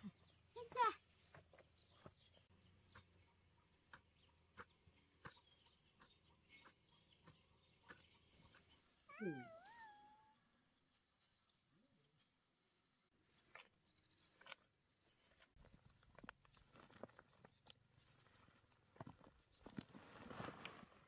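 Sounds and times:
hand hoe chopping soil: 1.2s - 8.8s.

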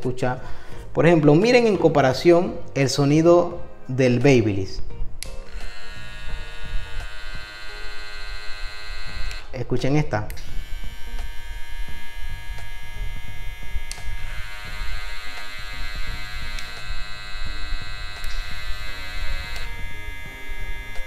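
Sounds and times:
hair clipper buzzing: 5.2s - 9.7s, 10.3s - 21.0s.

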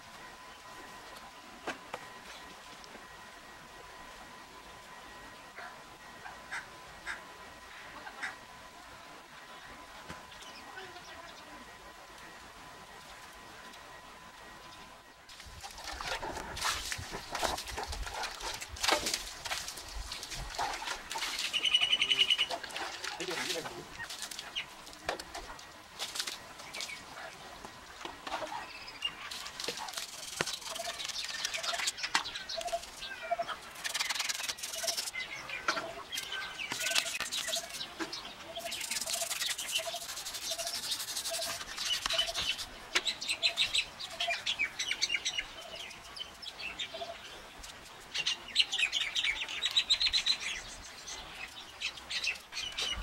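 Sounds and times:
small birds chirping: 19.5s - 25.7s, 28.5s - 53.0s
brush scrubbing metal: 29.3s - 32.0s, 33.7s - 35.2s, 36.1s - 42.8s.

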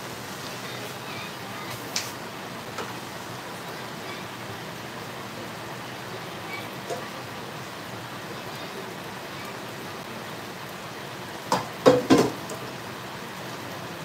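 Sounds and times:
cookware clattering: 11.5s - 12.4s.

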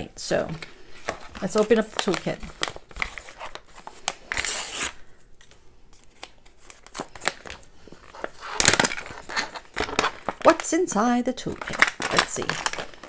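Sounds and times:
packaging pouch crinkling: 0.6s - 10.8s, 11.4s - 13.0s
packaging tearing rip: 2.0s - 5.0s, 8.2s - 10.6s.

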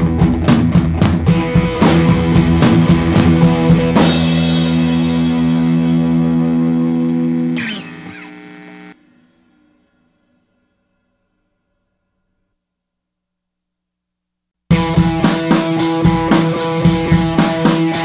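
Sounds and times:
rock music with distorted guitar: 0.0s - 9.0s, 14.7s - 18.0s.

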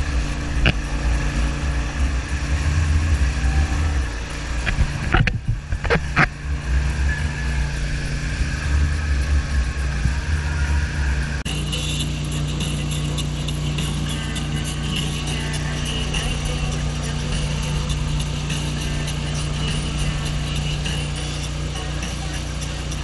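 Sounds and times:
wind on microphone: 0.0s - 11.5s
boat engine droning: 0.0s - 23.0s.

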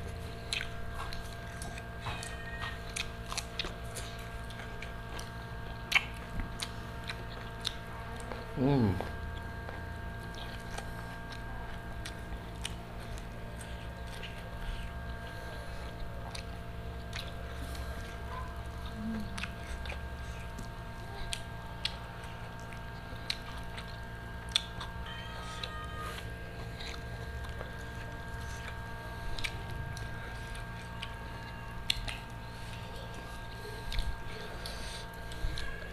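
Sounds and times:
chewing: 0.0s - 35.9s
clicks and smacks eating: 0.0s - 35.9s
steady low hum: 0.0s - 35.9s.

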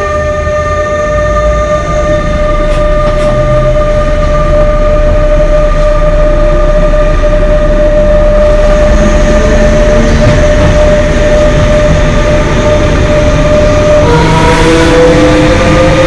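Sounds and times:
electric locomotive humming: 0.0s - 16.0s.

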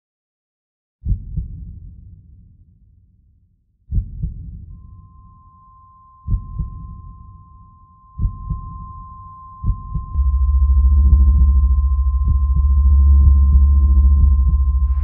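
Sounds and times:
heartbeat double thumps: 1.0s - 2.2s, 3.9s - 4.7s, 6.3s - 7.2s, 8.2s - 15.0s
steady high tone: 4.8s - 15.0s.

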